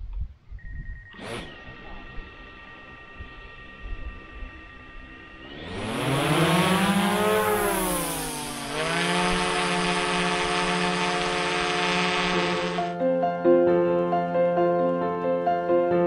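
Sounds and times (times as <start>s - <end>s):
drone propellers buzzing whine: 0.6s - 13.0s.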